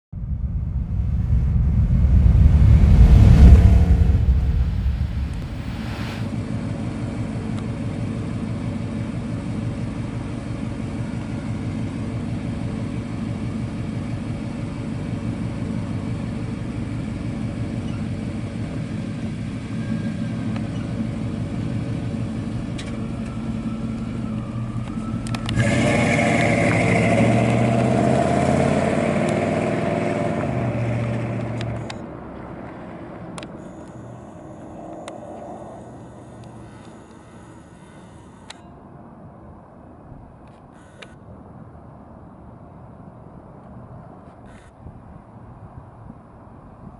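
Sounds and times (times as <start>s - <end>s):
truck engine idling and accelerating: 0.1s - 37.8s.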